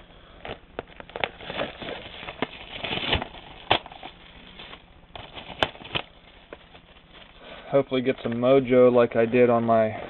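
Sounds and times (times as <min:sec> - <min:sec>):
plastic wrapper crinkling: 0:00.4 - 0:07.4.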